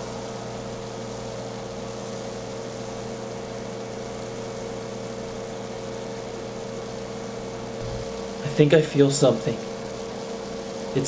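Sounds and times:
aquarium pump hum: 0.0s - 11.0s
water bubbling: 7.8s - 8.4s.

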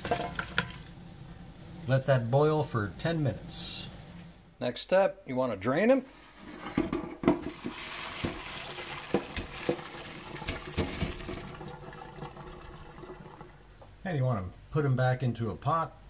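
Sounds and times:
water rushing through colander: 0.0s - 0.9s, 7.3s - 13.9s.

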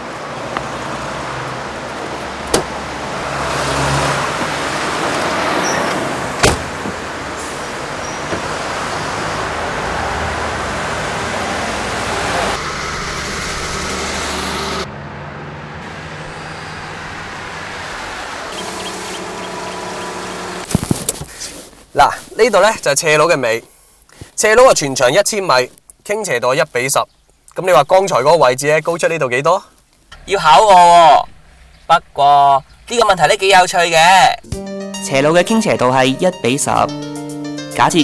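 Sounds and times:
car engine and road noise: 0.0s - 23.2s, 27.2s - 36.0s
car doors shutting: 2.4s - 2.8s, 4.3s - 8.6s.

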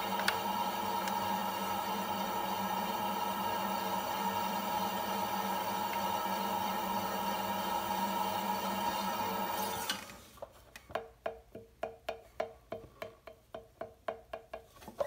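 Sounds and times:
potter's wheel running: 0.0s - 10.0s.

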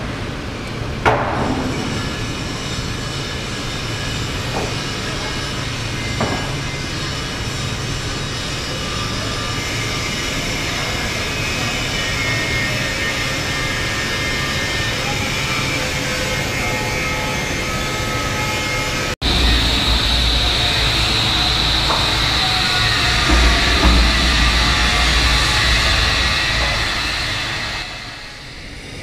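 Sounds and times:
workshop machinery hum: 0.0s - 29.0s
thin high whine: 18.0s - 29.0s.

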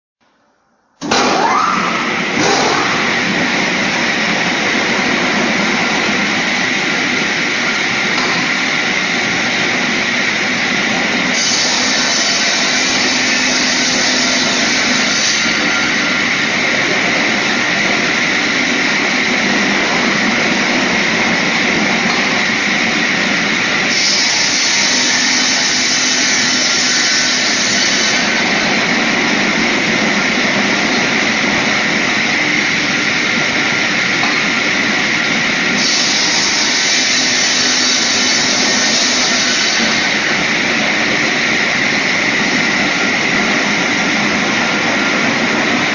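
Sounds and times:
table saw running: 1.0s - 45.9s
harsh hissy saw cutting: 11.3s - 16.2s, 23.8s - 28.4s, 35.7s - 40.3s.

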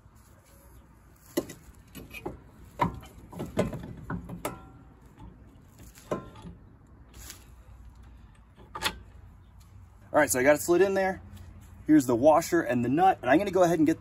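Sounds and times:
knocks and clunks: 1.4s - 6.6s.

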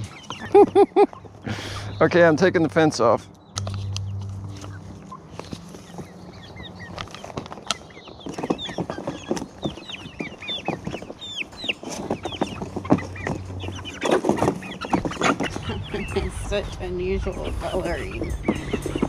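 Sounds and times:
chicks cheeping: 0.0s - 19.0s
knocks and rattles of crate: 7.2s - 16.1s, 18.1s - 19.0s.

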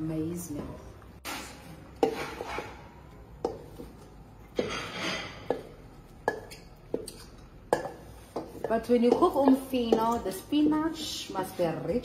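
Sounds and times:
wooden spoon knocking metal bowl: 7.7s - 11.1s.

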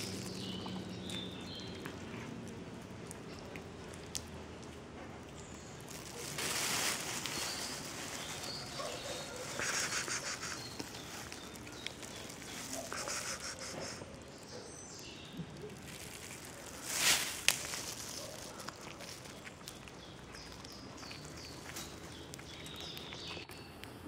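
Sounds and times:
rustling noise: 5.8s - 14.3s, 15.6s - 19.9s.

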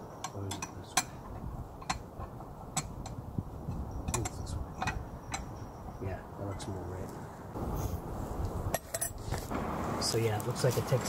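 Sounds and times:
metal frame clicking and tapping: 0.2s - 5.5s.

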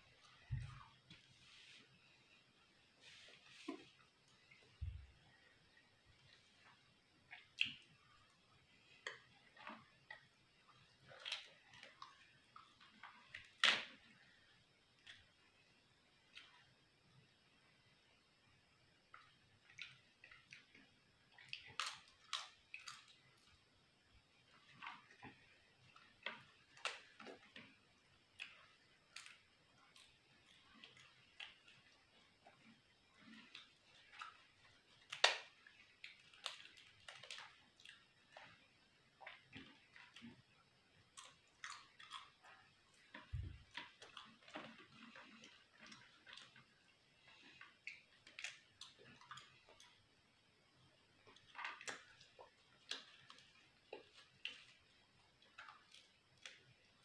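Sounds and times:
chewing: 28.4s - 38.6s, 41.1s - 46.6s
poppadom crackling and snapping: 35.0s - 35.5s.

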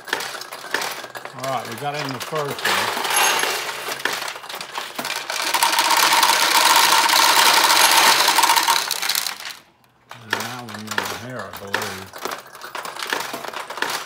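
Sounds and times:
steel balls clattering into tray: 0.0s - 9.6s.

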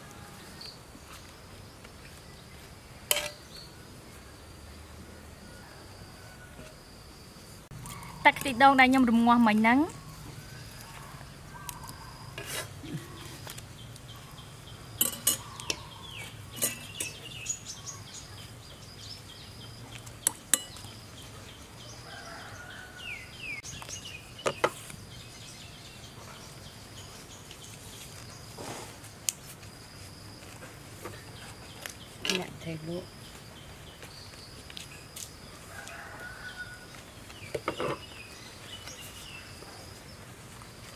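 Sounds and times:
metal spoon clinking on bowl: 3.1s - 3.4s, 15.0s - 15.8s, 16.6s - 17.2s, 20.5s - 20.9s.

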